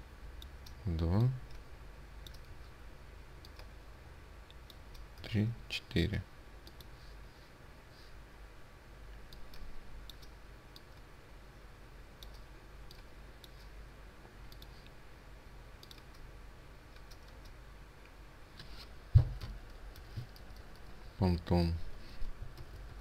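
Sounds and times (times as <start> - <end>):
low steady hum: 0.0 - 23.0
computer mouse clicking: 2.2 - 2.6, 3.4 - 3.7, 6.6 - 7.0, 9.3 - 11.1, 12.2 - 13.6, 14.5 - 15.0, 15.8 - 16.3, 16.9 - 17.6, 19.4 - 21.0.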